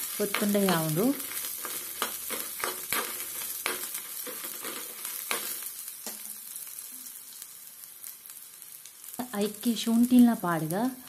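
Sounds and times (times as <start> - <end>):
faint sizzle: 0.0 - 11.0
metal spoon scraping pan: 0.3 - 5.5.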